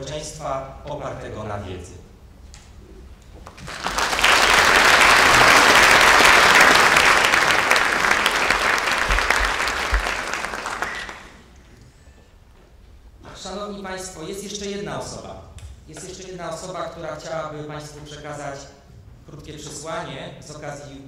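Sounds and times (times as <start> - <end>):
audience applauding: 3.5 - 11.5.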